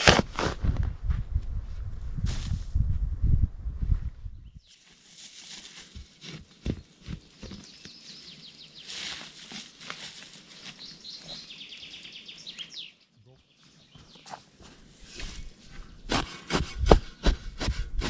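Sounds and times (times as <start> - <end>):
shovel thudding into sandy soil: 2.2 - 2.7
songbirds chirping: 4.3 - 17.6.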